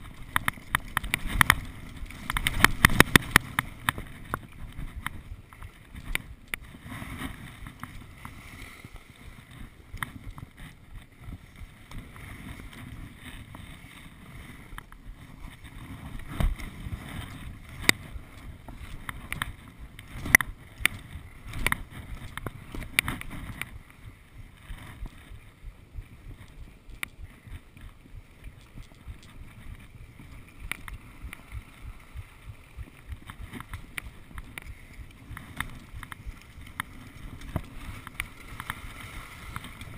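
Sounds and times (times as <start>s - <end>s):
sharp clicks and knocks: 0.0s - 6.6s
skis scraping on snow: 0.0s - 39.9s
wind on microphone: 0.0s - 39.9s.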